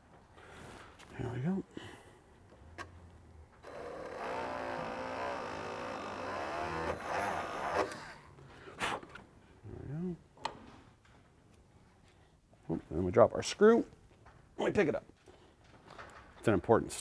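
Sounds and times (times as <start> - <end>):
rotary tool whining: 3.6 - 8.2.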